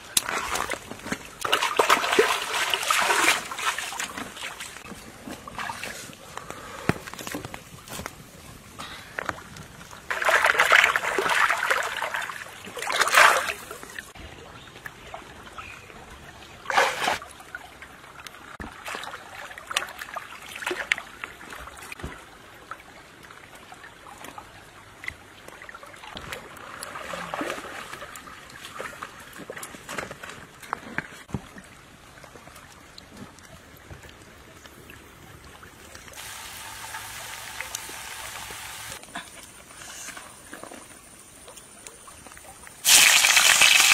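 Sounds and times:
hands splashing in water: 0:00.1 - 0:04.8.

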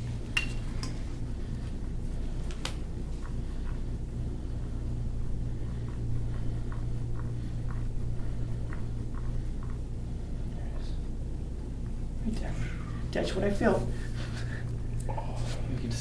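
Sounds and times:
steady low hum: 0:00.0 - 0:16.0
tool scraping along skin: 0:03.0 - 0:11.1.

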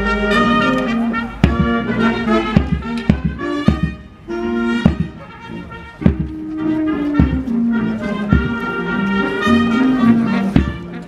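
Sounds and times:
brass chords: 0:00.0 - 0:11.0
drum strikes: 0:01.4 - 0:04.1, 0:04.8 - 0:05.3, 0:06.0 - 0:07.6, 0:08.3 - 0:08.6, 0:10.6 - 0:10.8.

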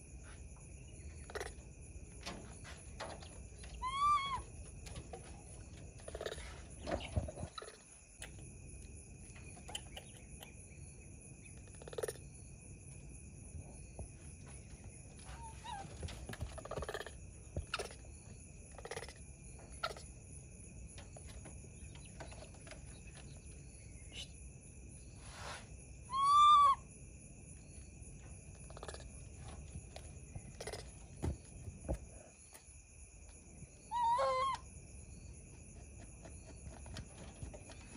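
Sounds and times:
baby monkey coo calls: 0:03.7 - 0:04.4, 0:26.1 - 0:26.9, 0:33.8 - 0:34.6.

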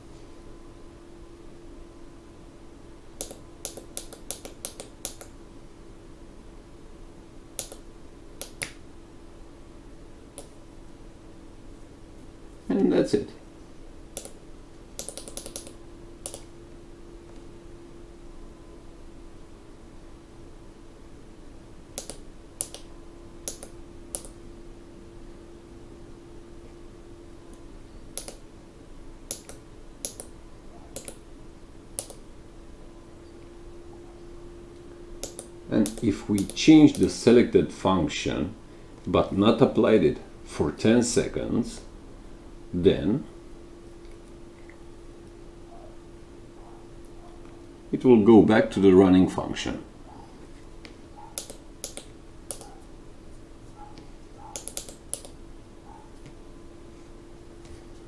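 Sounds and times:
faint steady hum: 0:00.0 - 0:58.0
push buttons clicking: 0:15.0 - 0:16.5, 0:31.0 - 0:31.2, 0:35.2 - 0:37.1, 0:54.4 - 0:55.4.

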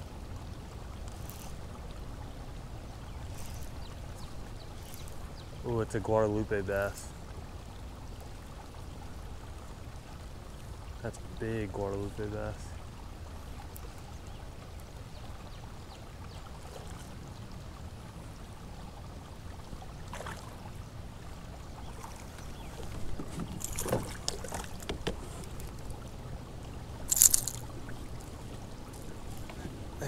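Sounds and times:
water and wind noise: 0:00.0 - 0:30.0
fish splashing: 0:21.8 - 0:26.3, 0:26.9 - 0:29.7.

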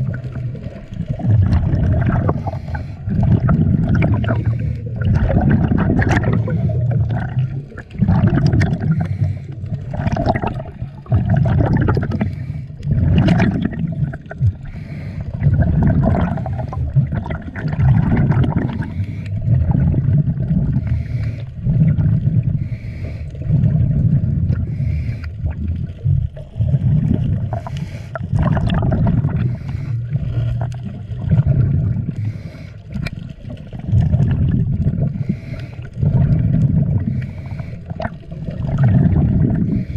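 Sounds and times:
underwater rumbling: 0:00.0 - 0:39.9
sharp underwater clicks: 0:32.2 - 0:39.9.

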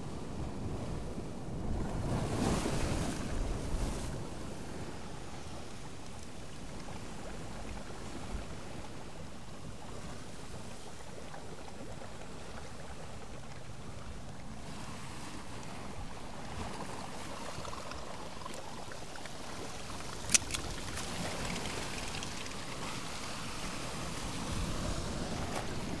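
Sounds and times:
sea water lapping against rocks: 0:01.6 - 0:26.0
sharp click: 0:20.3 - 0:20.7.

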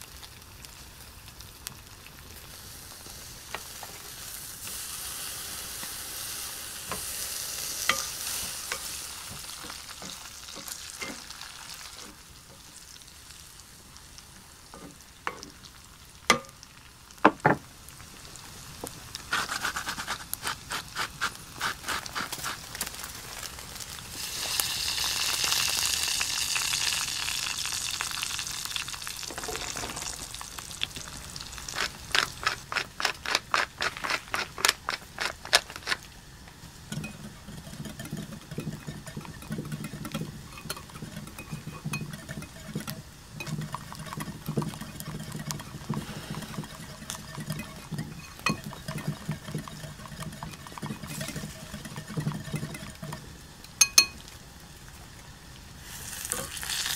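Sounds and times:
steaks sizzling on a grill: 0:00.0 - 0:32.7, 0:36.2 - 0:48.8, 0:55.8 - 0:56.9
whisk beating egg in a bowl: 0:36.9 - 0:53.3.

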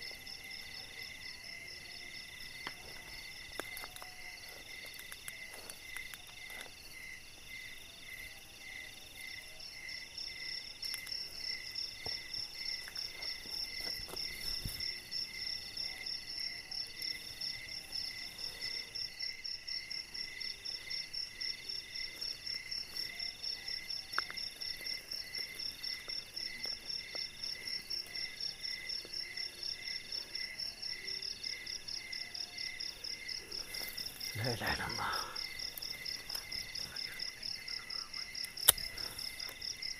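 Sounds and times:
crickets chirping: 0:00.0 - 0:39.9
high fast-pulsing insect call: 0:00.0 - 0:39.9.

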